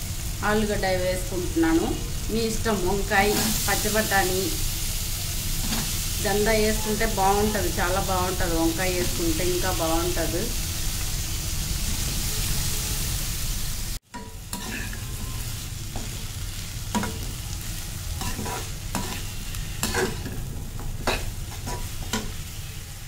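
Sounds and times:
vegetables sizzling in oil: 0.0 - 23.0
metal spatula scraping pan: 5.6 - 7.4, 14.1 - 17.4, 18.1 - 22.9.

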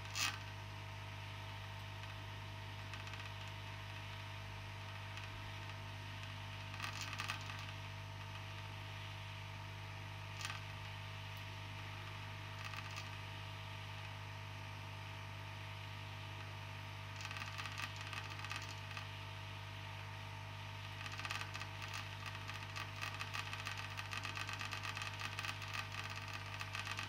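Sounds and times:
light crackling and ticking: 1.3 - 9.0, 9.6 - 13.4, 16.2 - 19.2, 20.8 - 27.0.

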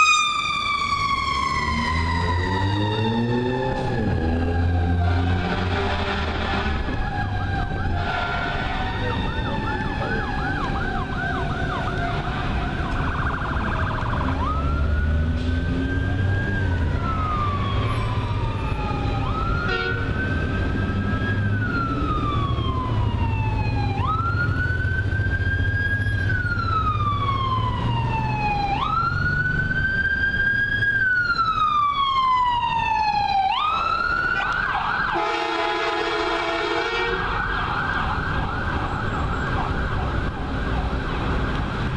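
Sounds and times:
siren yelping and wailing: 0.0 - 41.9
air horn blare: 5.0 - 7.0, 7.9 - 9.2, 19.6 - 20.2, 35.1 - 37.4.

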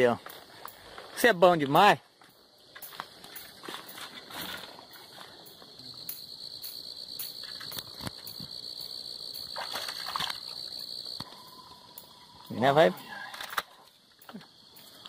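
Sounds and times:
night insects chirring: 0.0 - 15.0
water splashing: 9.4 - 10.9.

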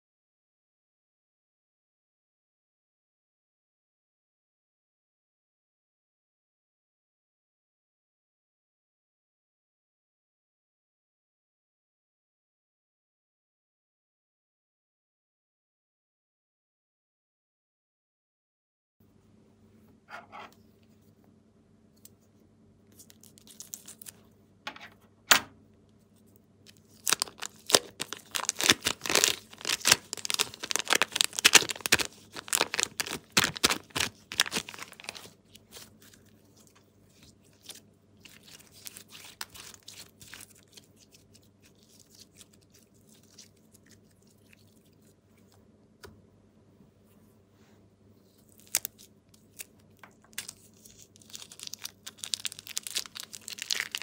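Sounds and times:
plastic bag crackling: 26.7 - 40.8, 50.3 - 54.0.

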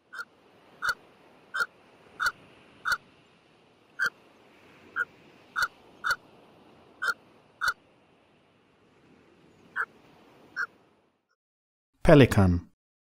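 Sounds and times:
pelican calling: 0.1 - 3.0, 4.0 - 4.2, 4.9 - 6.3, 7.0 - 7.8.

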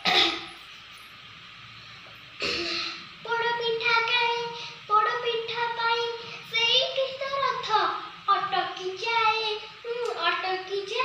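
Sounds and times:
girl singing: 3.3 - 11.0.

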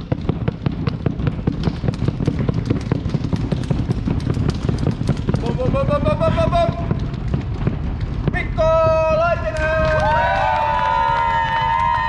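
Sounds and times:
audience drumroll of claps: 1.6 - 12.0.

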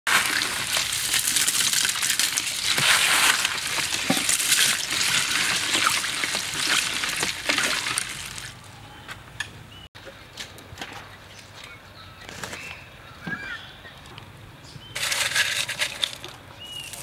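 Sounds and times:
ice cubes clinking in a steel bowl: 0.1 - 8.5, 15.0 - 17.0
liquid sloshing: 0.1 - 8.6.

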